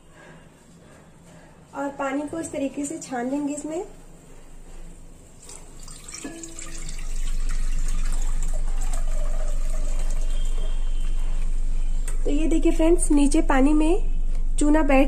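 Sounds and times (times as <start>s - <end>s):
water pouring through a strainer: 5.4s - 11.4s.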